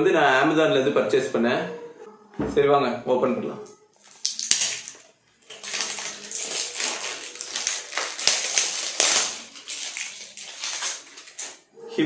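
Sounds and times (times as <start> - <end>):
plastic seal crinkling as torn off: 4.0 - 11.6.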